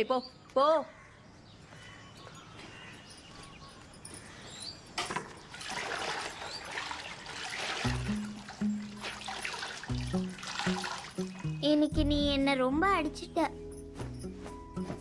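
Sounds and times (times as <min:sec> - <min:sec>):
water sloshing in bucket: 0:05.1 - 0:11.5.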